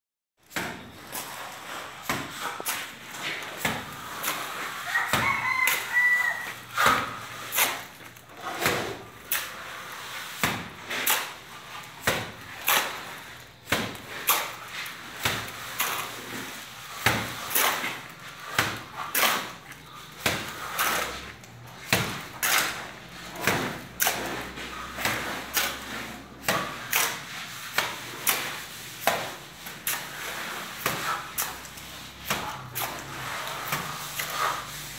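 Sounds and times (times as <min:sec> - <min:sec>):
trowel scraping mortar: 0:00.7 - 0:34.9
plaster slapping onto wall: 0:13.7 - 0:14.6.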